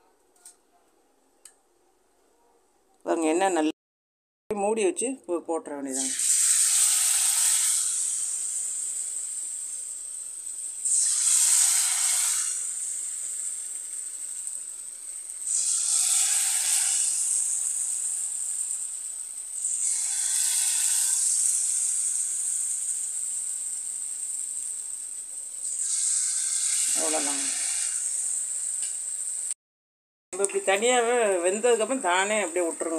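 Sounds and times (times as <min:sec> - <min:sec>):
deep-frying oil sizzling: 0:05.9 - 0:29.6, 0:30.4 - 0:32.9.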